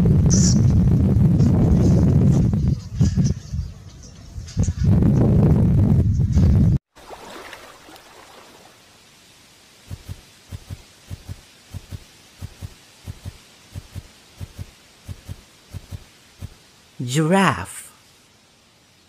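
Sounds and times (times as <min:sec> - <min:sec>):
faint hiss: 0:07.0 - 0:19.0.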